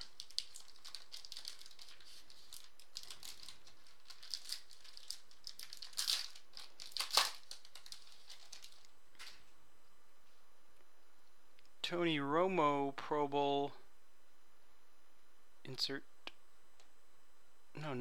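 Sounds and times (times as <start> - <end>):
foil wrapper crinkling: 0.0 - 9.5.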